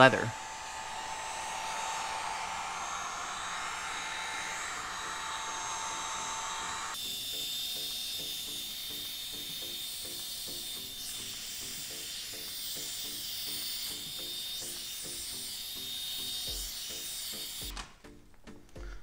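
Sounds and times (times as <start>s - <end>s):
heat gun blowing with high whine: 0.0s - 17.8s
background music with steady beat: 7.3s - 19.0s.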